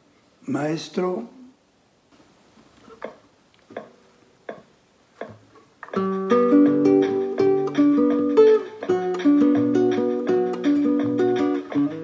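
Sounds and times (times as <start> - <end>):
classical guitar playing: 5.2 - 12.0.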